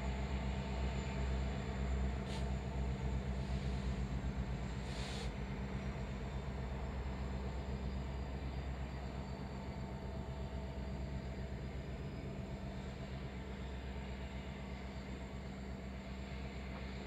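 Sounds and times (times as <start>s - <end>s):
short hiss: 2.2s - 2.5s, 4.8s - 5.3s.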